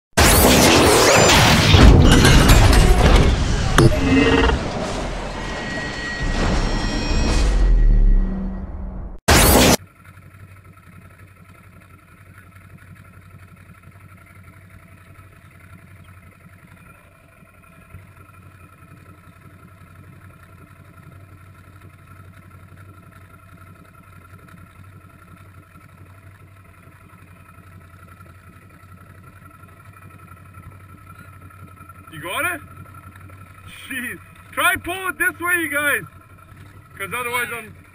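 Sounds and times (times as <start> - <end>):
engine idling: 9.7 - 37.9.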